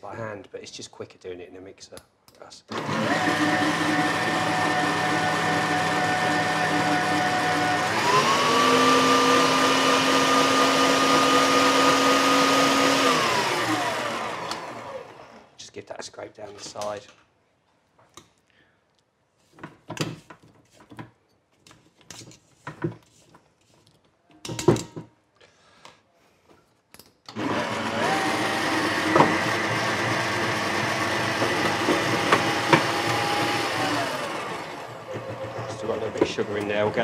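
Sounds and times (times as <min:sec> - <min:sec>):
stand mixer motor whining: 0:02.7 - 0:15.5, 0:27.3 - 0:37.0.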